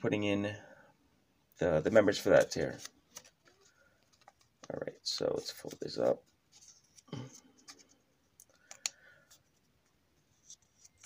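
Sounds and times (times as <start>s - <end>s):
paper being folded and creased: 2.1s - 8.0s, 10.3s - 11.0s.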